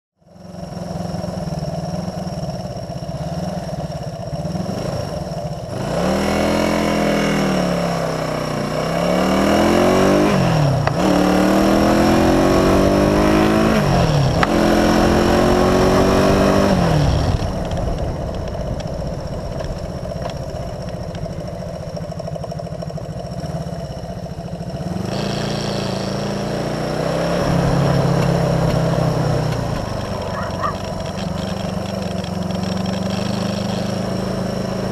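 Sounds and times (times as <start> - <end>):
motorcycle engine accelerating: 0.2 - 34.9
wind and road hiss: 10.6 - 23.7, 24.5 - 34.9.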